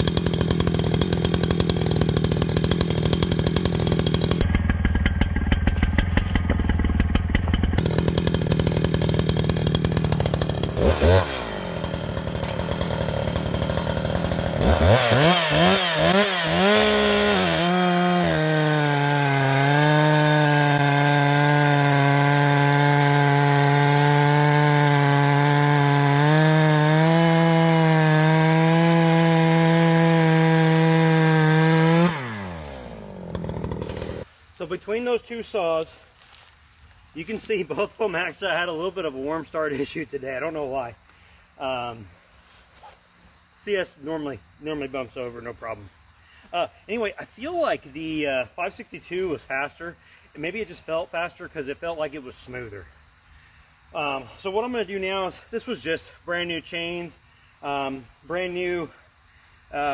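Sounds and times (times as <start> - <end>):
chainsaw revving: 0.0 - 34.3.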